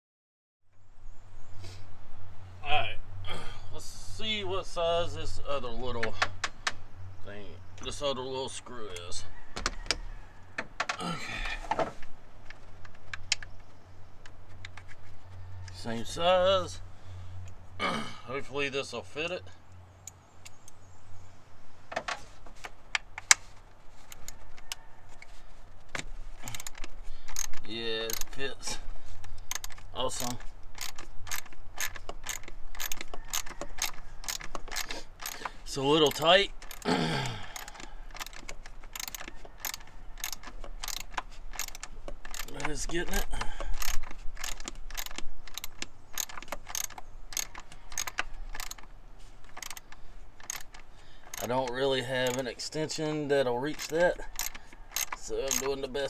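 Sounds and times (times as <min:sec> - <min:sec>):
metal socket and ratchet clicking: 0:26.4 - 0:36.9, 0:37.6 - 0:52.7, 0:53.6 - 0:56.0.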